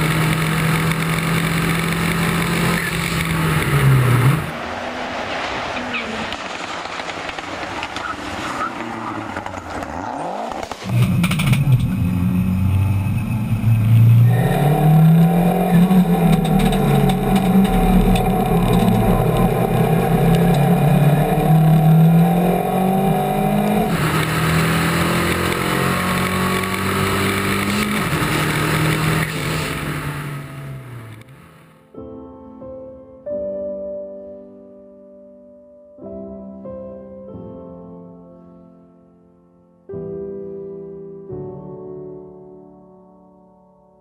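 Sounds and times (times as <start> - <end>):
rally car engine revving at full throttle: 0.0 - 31.5.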